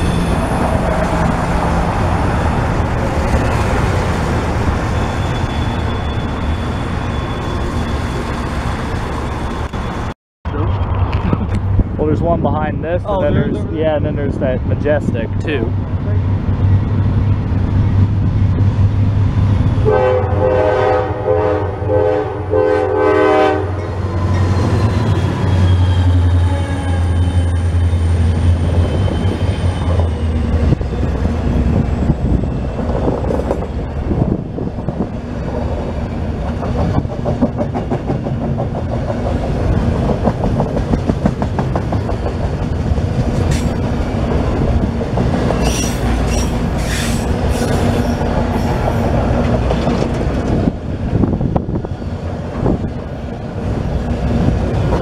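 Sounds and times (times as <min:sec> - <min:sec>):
locomotive engine rumbling: 0:00.0 - 0:55.0
high wheel squeals: 0:04.8 - 0:10.1, 0:45.6 - 0:48.2
locomotive air horn: 0:19.8 - 0:23.8
wheels clacking over rail joints: 0:34.8 - 0:51.2.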